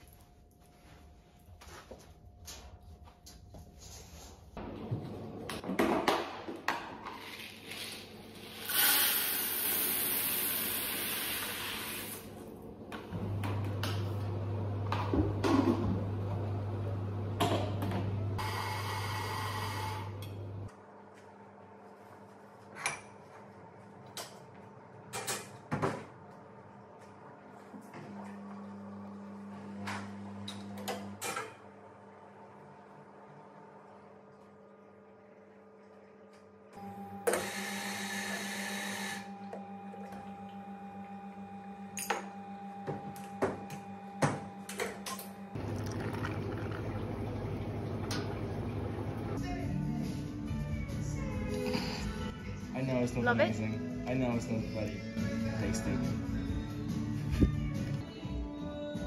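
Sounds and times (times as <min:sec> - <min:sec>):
espresso machine hum: 0:08.5 - 0:20.7, 0:36.8 - 0:49.4.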